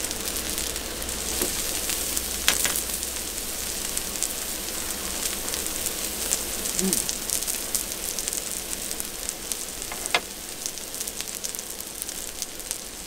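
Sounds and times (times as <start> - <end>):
food sizzling on a griddle: 0.0 - 13.0.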